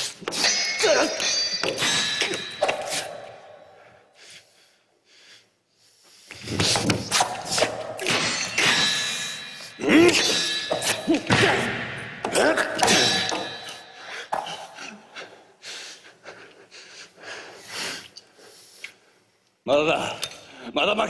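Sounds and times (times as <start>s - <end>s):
metal blades clashing: 0.0s - 3.4s, 7.1s - 14.3s
fighters grunting: 0.4s - 1.3s, 9.8s - 13.6s.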